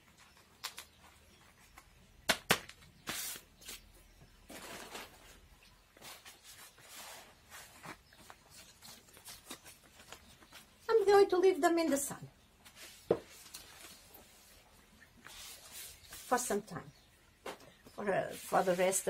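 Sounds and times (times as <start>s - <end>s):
soft rustling and brushing: 4.5s - 10.8s, 12.6s - 16.8s, 17.4s - 19.0s.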